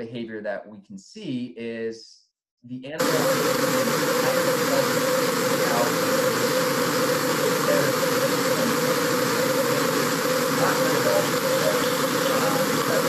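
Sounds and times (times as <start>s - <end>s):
constant hum: 3.0s - 13.0s
underwater water rushing: 3.0s - 13.0s.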